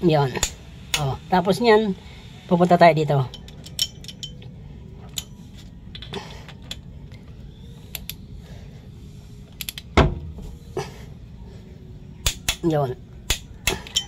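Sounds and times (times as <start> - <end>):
torque wrench metallic clicks: 9.6 - 9.9.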